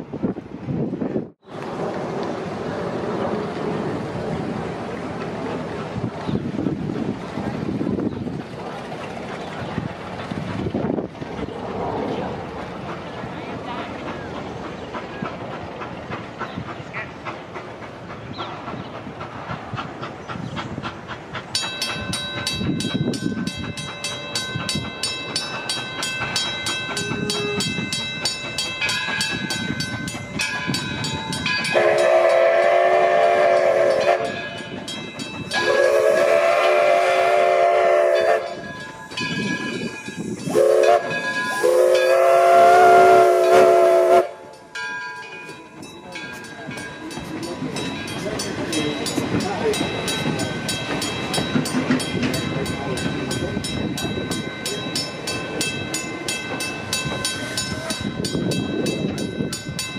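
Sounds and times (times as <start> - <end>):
steam locomotive running: 0.0 - 59.9
locomotive bell ringing: 21.5 - 59.9
train whistle blasts: 31.7 - 34.4, 35.5 - 38.6, 40.4 - 44.5.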